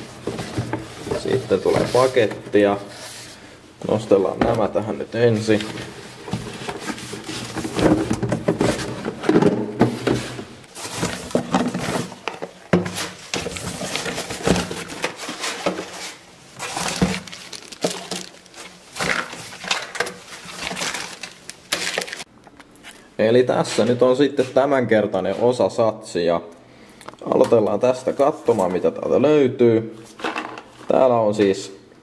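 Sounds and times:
cardboard rustling and scraping: 0.0s - 22.3s
boxes knocking: 6.3s - 15.0s.

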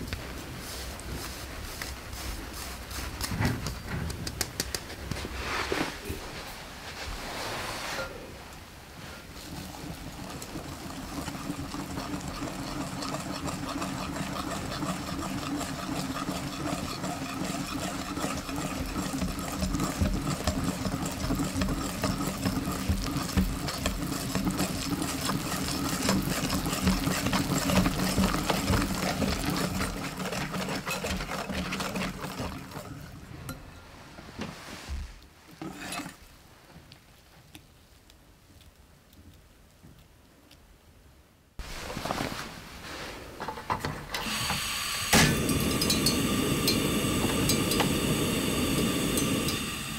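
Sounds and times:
electric hand mixer running: 10.1s - 32.9s, 44.2s - 49.9s.

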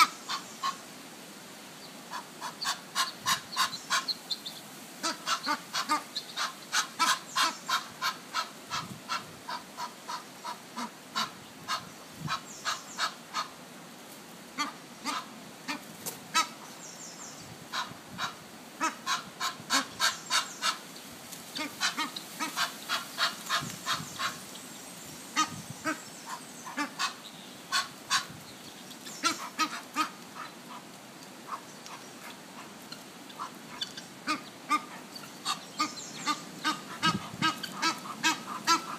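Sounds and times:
geese honking: 29.1s - 30.8s, 31.5s - 38.9s.

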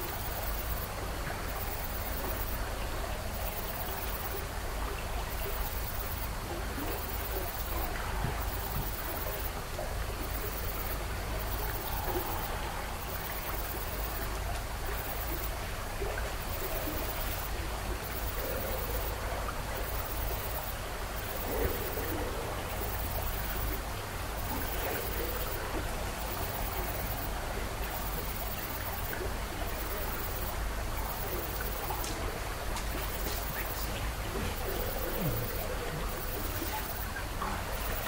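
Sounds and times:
faint high hiss: 0.0s - 38.0s
steady rushing noise: 5.6s - 38.0s.

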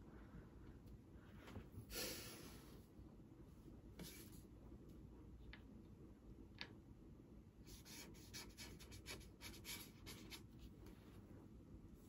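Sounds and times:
pen scratching on paper: 7.7s - 10.6s.

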